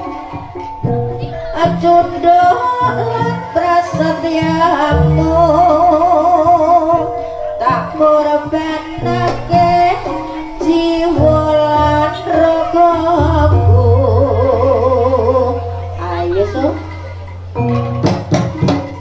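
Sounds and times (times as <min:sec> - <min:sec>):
drum strokes: 0:00.0 - 0:19.0
gamelan ensemble: 0:00.0 - 0:19.0
wavering melody line with vibrato: 0:00.0 - 0:19.0
deep sustained low tone: 0:04.9 - 0:17.2.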